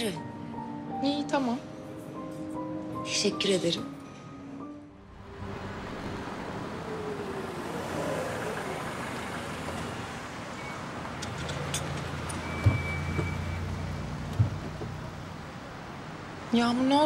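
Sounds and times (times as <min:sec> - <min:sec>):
street traffic: 0:00.0 - 0:17.0
car engine idling: 0:05.1 - 0:16.4.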